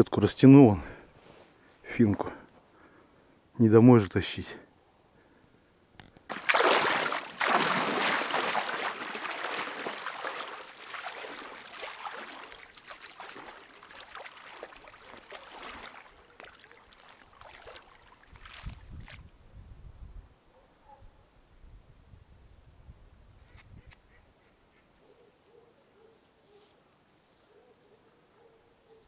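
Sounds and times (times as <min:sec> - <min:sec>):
water splashing: 0:06.3 - 0:19.2.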